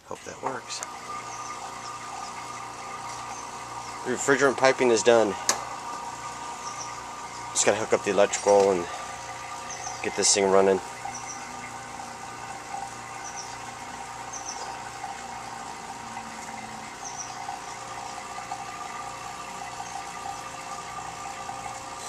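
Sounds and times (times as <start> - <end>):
low hum: 0.0 - 22.0
high bird chirps: 6.6 - 7.0, 9.6 - 10.1, 11.0 - 11.6, 13.2 - 13.6, 14.3 - 14.7, 17.0 - 17.5.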